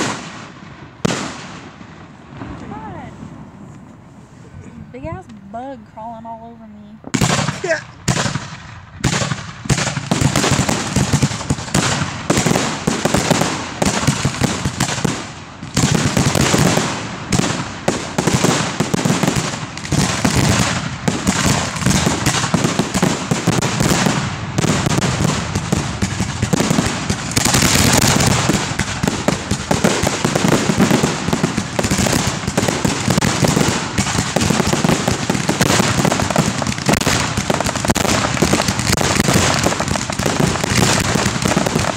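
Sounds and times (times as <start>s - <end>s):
fireworks bangs: 0.0s - 41.9s
fireworks hissing crackle: 7.1s - 41.9s.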